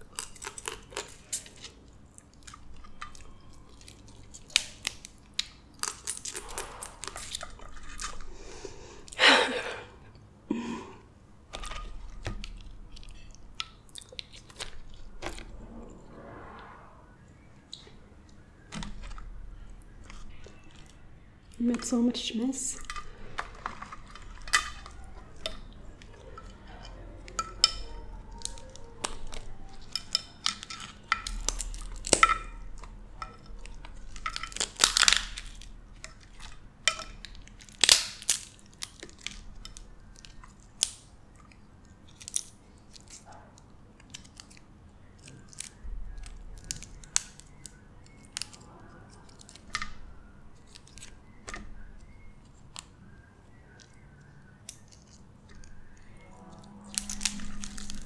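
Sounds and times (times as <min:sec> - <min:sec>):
crab shells cracking by hand: 0:00.0 - 0:08.3, 0:22.8 - 0:58.0
crunching and chewing: 0:00.0 - 0:10.4, 0:11.0 - 0:15.5, 0:17.7 - 0:58.0.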